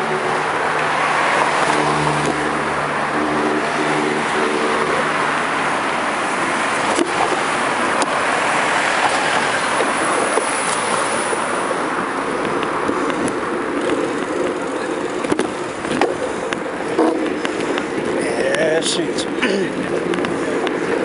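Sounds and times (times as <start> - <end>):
bicycle tyres rolling on road: 0.0 - 21.0
wind on microphone: 0.0 - 21.0
bicycle knocks and rattles: 6.2 - 8.2.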